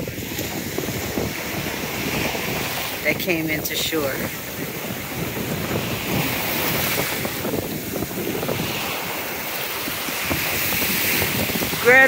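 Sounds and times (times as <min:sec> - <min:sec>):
ocean surf breaking: 0:00.0 - 0:12.0
wind on microphone: 0:00.0 - 0:12.0.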